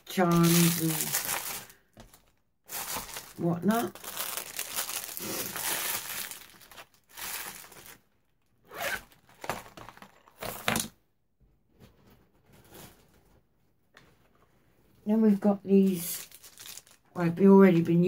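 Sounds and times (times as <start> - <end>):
packaging crinkling and rustling: 0.0 - 8.2, 8.8 - 10.9, 15.9 - 17.9.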